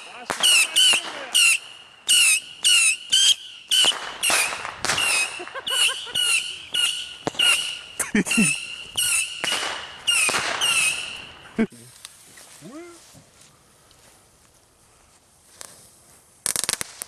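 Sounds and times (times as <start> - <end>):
whistling firework pops: 0.0 - 11.4.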